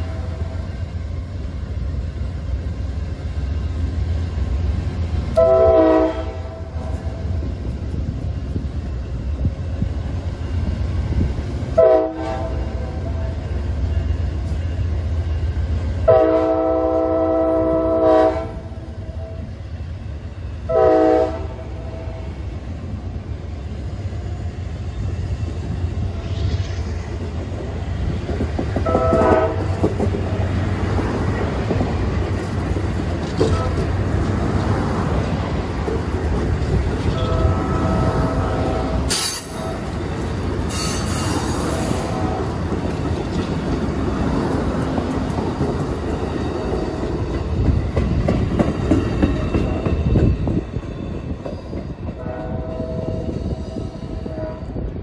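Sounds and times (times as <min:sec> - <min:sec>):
train cars rumbling and clattering: 0:00.0 - 0:55.0
locomotive air horn: 0:05.4 - 0:07.2, 0:11.8 - 0:13.3, 0:16.1 - 0:19.5, 0:20.7 - 0:22.2, 0:28.8 - 0:29.8, 0:37.0 - 0:39.9, 0:40.7 - 0:42.6, 0:52.2 - 0:54.8.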